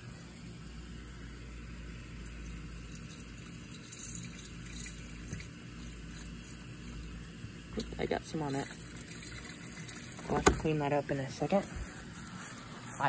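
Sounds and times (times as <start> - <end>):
fuel pouring into plastic tank: 1.9 - 10.8.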